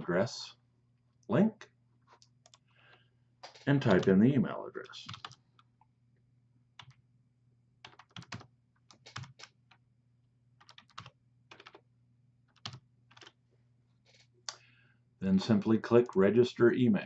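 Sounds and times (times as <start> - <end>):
faint keyboard typing: 1.2 - 4.2, 4.8 - 5.9, 6.8 - 7.0, 7.8 - 9.8, 10.6 - 11.8, 12.4 - 13.4, 14.0 - 14.7.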